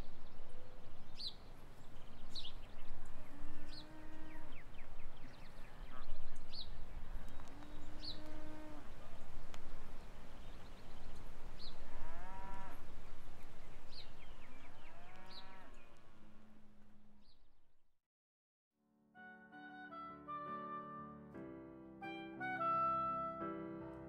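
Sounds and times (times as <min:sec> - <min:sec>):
low animal calls: 0:07.4 - 0:09.2.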